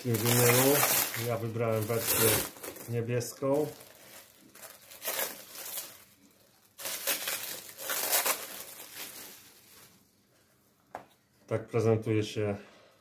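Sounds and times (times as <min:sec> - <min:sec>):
packaging crinkling: 0:00.0 - 0:10.1.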